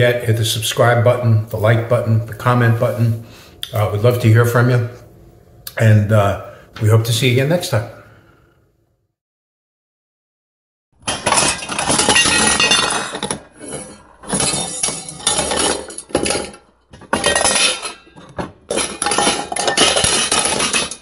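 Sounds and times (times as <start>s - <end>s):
metallic clinking and clattering: 11.0s - 21.0s.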